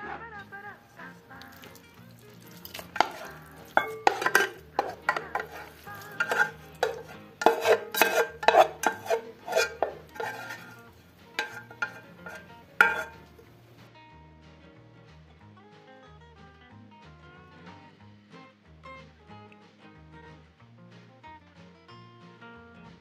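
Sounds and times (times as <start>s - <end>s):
spatula scraping frying pan: 1.4s - 13.6s
pan knocking against bowl rim: 2.6s - 13.4s.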